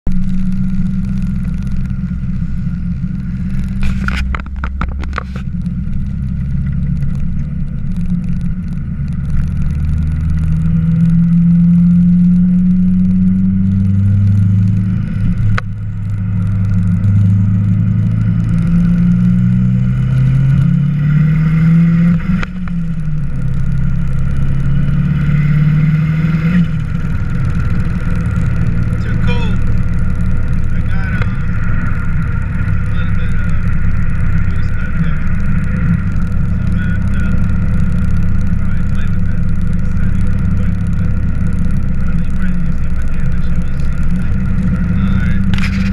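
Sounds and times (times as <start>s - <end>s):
car engine accelerating: 0.0s - 45.9s
rapid clicks: 26.5s - 45.9s.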